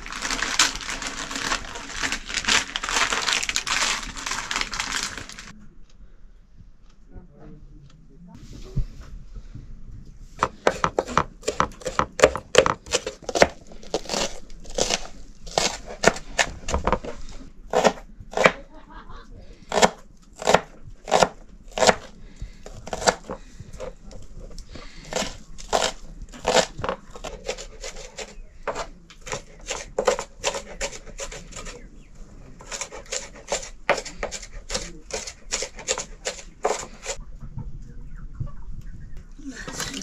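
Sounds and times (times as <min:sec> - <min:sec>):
knife chopping on cutting board: 0:10.4 - 0:17.0, 0:17.7 - 0:18.6, 0:19.7 - 0:22.1, 0:22.7 - 0:23.9.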